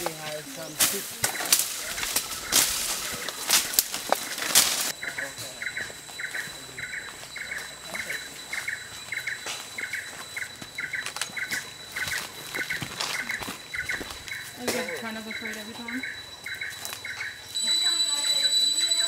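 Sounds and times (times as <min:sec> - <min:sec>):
footsteps through undergrowth: 0:00.0 - 0:17.4
faint high whine: 0:00.2 - 0:19.0
high double chirp: 0:04.9 - 0:19.0.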